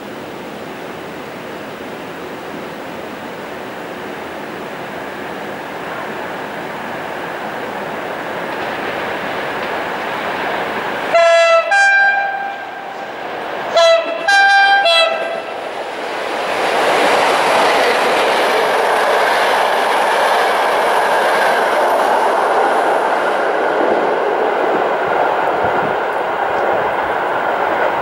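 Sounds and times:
train wheels rumbling on rails: 0:00.2 - 0:28.0
two-tone train horn: 0:11.1 - 0:15.7.

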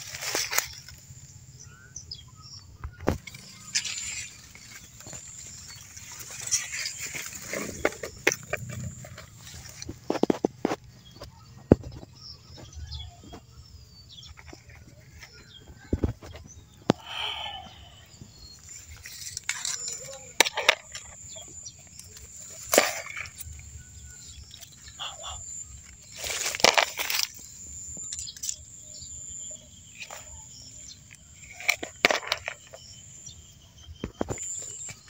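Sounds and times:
dry leaves rustling: 0:00.0 - 0:01.2, 0:03.1 - 0:10.2, 0:18.6 - 0:25.1, 0:25.8 - 0:28.6.

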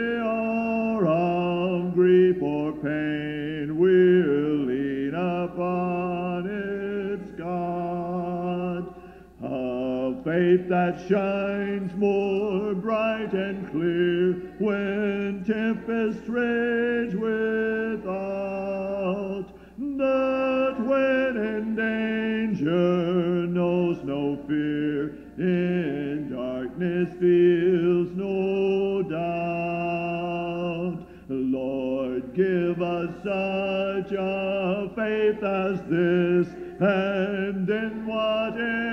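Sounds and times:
group singing a hymn a cappella: 0:00.0 - 0:38.9.

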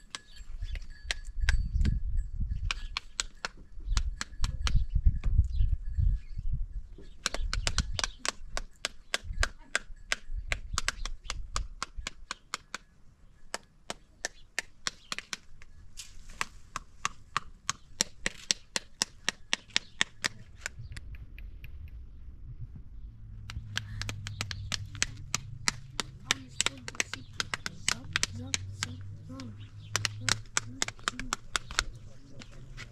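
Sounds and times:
sharp rapid taps: 0:07.2 - 0:12.8, 0:23.4 - 0:32.5.

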